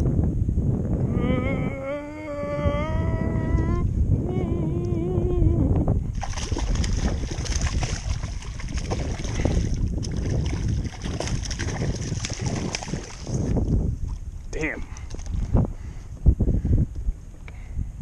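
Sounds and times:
wind on microphone: 0.0 - 18.0
fish splashing at water surface: 6.2 - 13.4.

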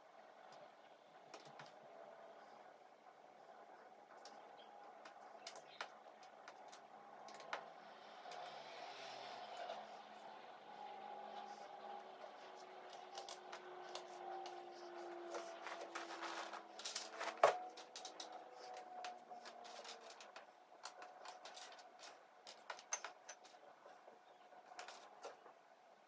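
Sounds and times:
puzzle pieces clicking and rustling: 13.0 - 23.6.

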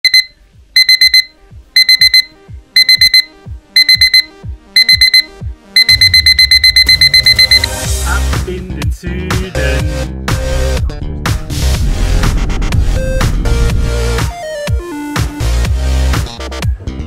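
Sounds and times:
digital alarm clock beeping: 0.0 - 7.7.

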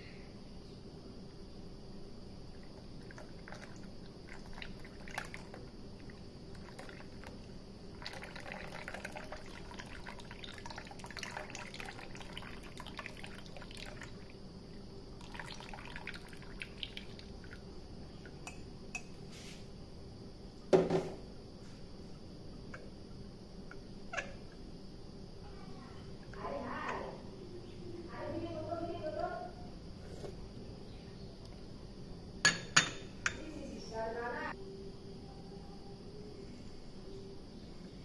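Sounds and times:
tea pouring into a cup: 2.6 - 14.4, 15.2 - 19.1.

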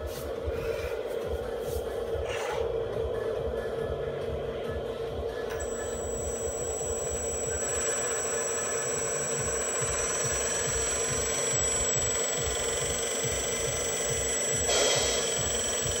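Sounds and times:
high-pitched whine: 0.0 - 16.0
low regular pulsing: 0.0 - 16.0
toy truck motor hum: 4.6 - 16.0.

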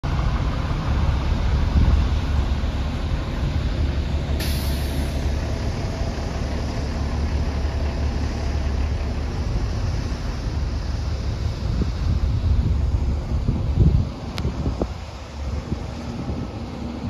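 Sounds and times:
diesel engine idling: 0.0 - 17.0
brief hiss: 4.4 - 5.6.

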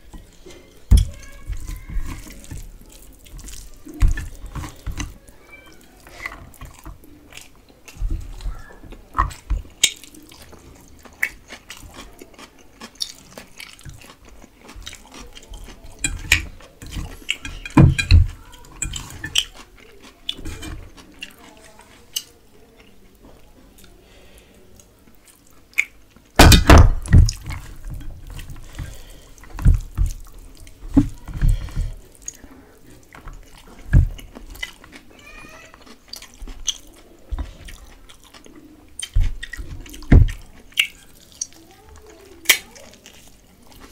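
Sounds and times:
fingers squishing rice: 0.0 - 22.4
chewing and lip smacks: 6.0 - 17.5, 32.0 - 35.1, 35.7 - 43.9.

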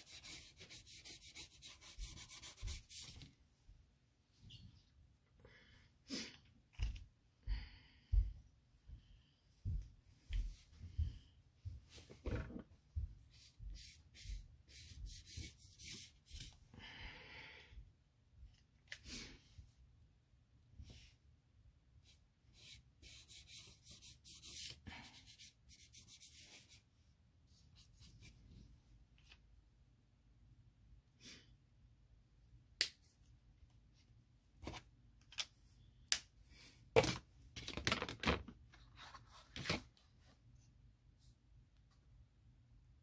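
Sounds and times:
scratchy rubbing: 0.0 - 3.2.

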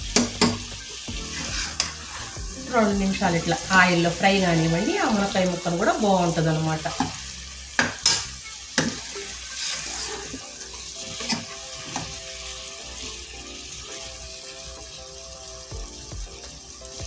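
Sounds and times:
food sizzling in hot oil: 0.0 - 17.0
spoon knocking against pan: 0.1 - 0.7, 7.8 - 9.1.

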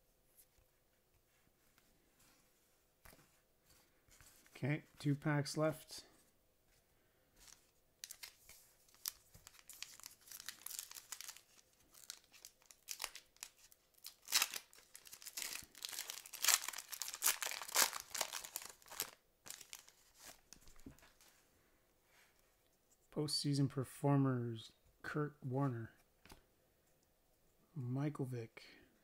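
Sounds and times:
foil wrapper crinkling and tearing: 8.0 - 20.4.

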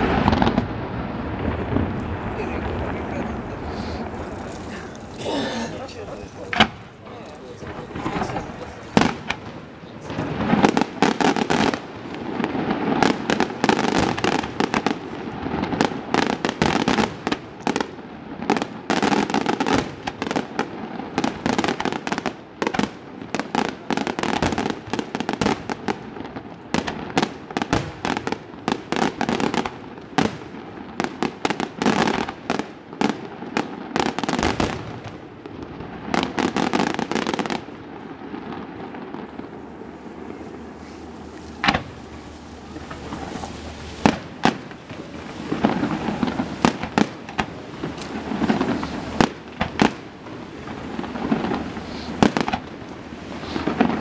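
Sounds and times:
firework shells bursting: 3.6 - 17.9, 38.3 - 54.0.

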